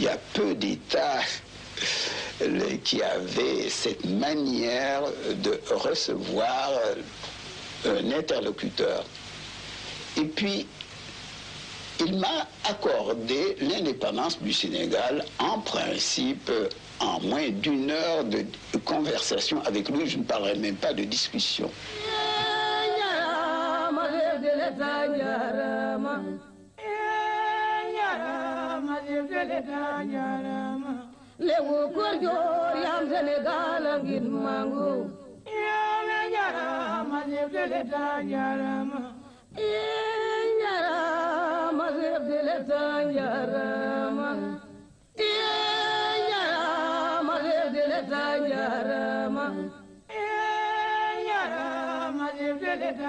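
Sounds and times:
unaccompanied singing voices: 0:12.0 - 0:53.0.

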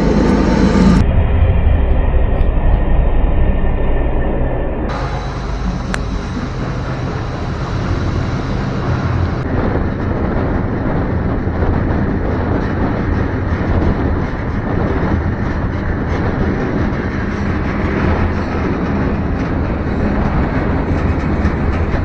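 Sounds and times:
freight train rumbling past: 0:00.0 - 0:04.2, 0:04.8 - 0:22.0.

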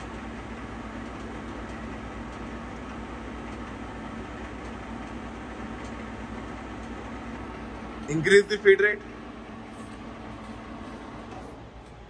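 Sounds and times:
lathe running: 0:00.0 - 0:12.0.

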